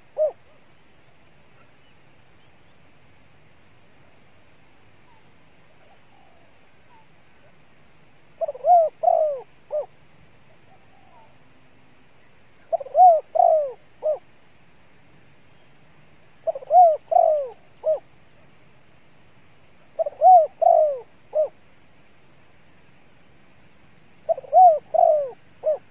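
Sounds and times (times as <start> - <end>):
dove cooing: 0.0 - 0.6, 8.4 - 10.0, 10.7 - 11.4, 12.6 - 14.3, 16.4 - 18.1, 20.0 - 21.6, 24.2 - 25.9.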